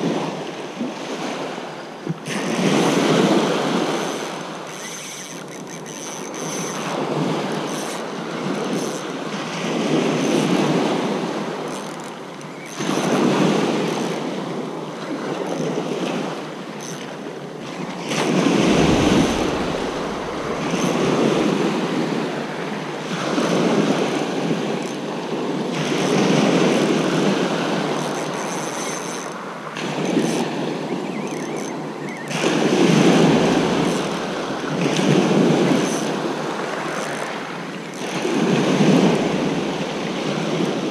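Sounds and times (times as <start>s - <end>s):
waves washing up shingle beach: 18.0s - 28.1s, 31.6s - 40.9s.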